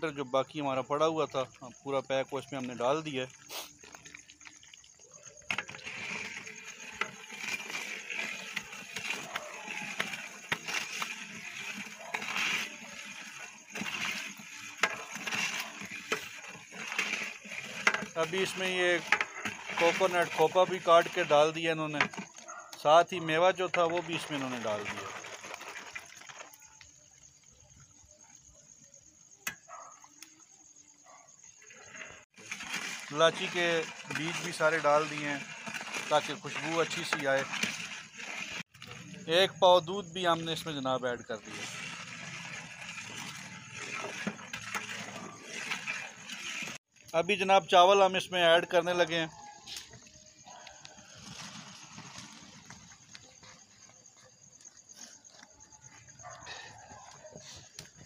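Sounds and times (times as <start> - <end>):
liquid sloshing in metal pot: 0.4 - 26.7, 31.6 - 47.0.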